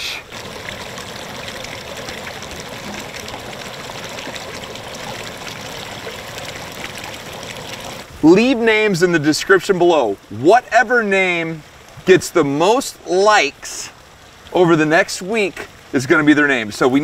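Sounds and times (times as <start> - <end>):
water trickling: 0.0 - 17.0.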